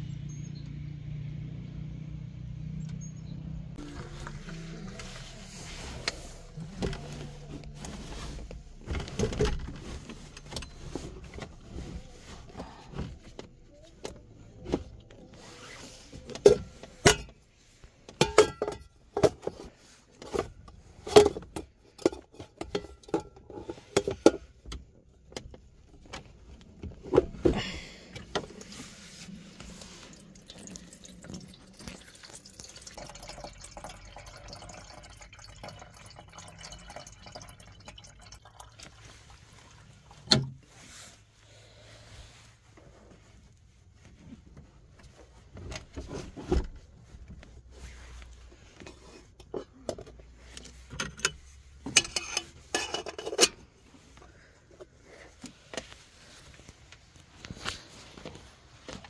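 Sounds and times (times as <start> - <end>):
water pouring into kettle: 30.1 - 39.2
metal kettle clattering: 52.0 - 53.6.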